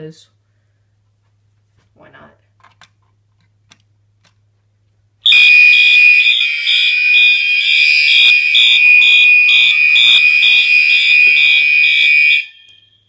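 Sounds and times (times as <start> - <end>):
fire alarm steady high tone: 5.2 - 13.0
pulsing higher alarm tone: 5.3 - 13.0.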